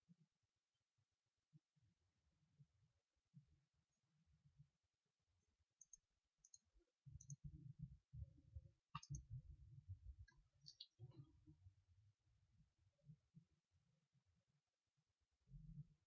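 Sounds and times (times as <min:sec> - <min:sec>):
faint clicks: 0:05.8 - 0:07.6, 0:08.9 - 0:09.4, 0:10.2 - 0:11.2.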